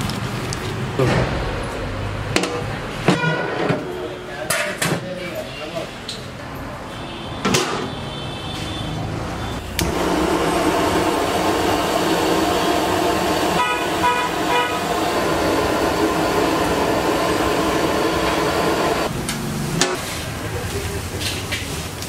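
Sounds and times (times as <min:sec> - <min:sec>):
gas burner flame roaring: 0:09.5 - 0:22.0
burner ignition click: 0:09.7 - 0:13.6, 0:15.2 - 0:19.1.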